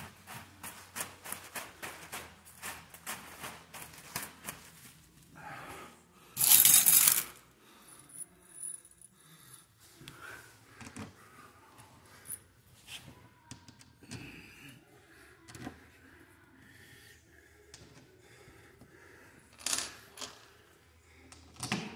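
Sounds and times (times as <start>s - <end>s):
metal screws clicking: 6.4s - 7.4s.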